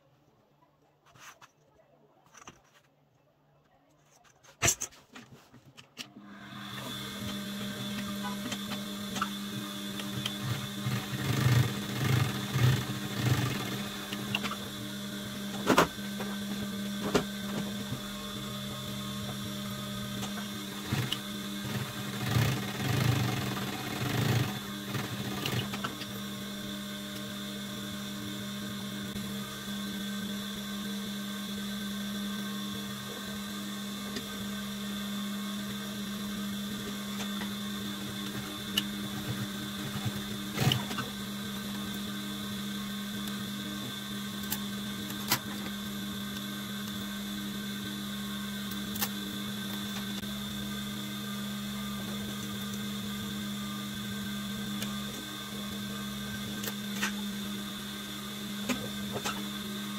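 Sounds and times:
sewing machine motor hum: 6.2s - 59.9s
sewing machine stitching: 6.5s - 14.7s, 20.0s - 26.3s, 37.2s - 41.2s.

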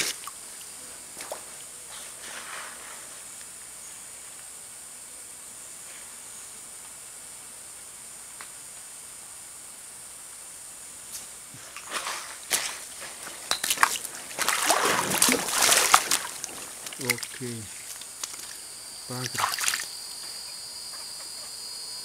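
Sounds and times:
high-pitched hiss: 0.0s - 22.0s
footsteps on stones: 11.6s - 18.6s.

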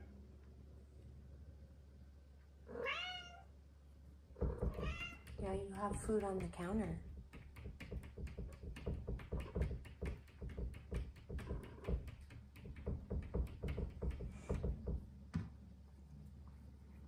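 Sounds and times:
cat claws scratching at door: 4.4s - 15.0s.

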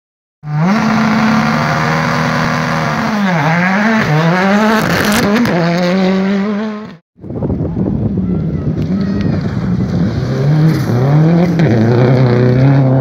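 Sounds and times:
rally car engine at high revs: 0.4s - 7.0s, 9.6s - 13.0s.

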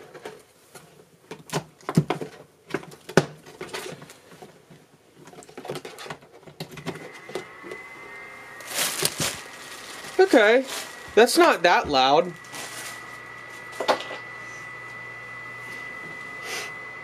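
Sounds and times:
fan heater whine: 3.4s - 17.0s.

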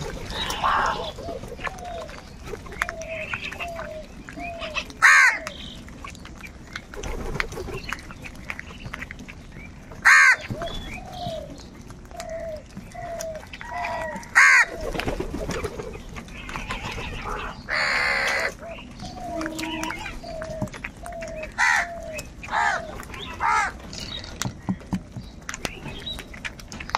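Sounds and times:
crows cawing harshly: 0.3s - 1.1s, 5.0s - 5.4s, 10.0s - 10.5s, 13.7s - 14.8s, 17.7s - 18.6s, 21.6s - 23.8s.

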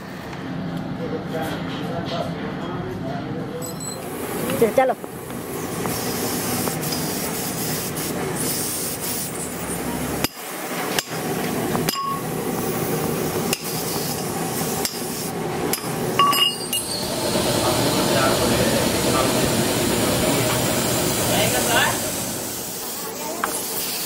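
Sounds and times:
steady background noise: 0.0s - 24.0s
steel rods clinking: 15.7s - 17.0s.

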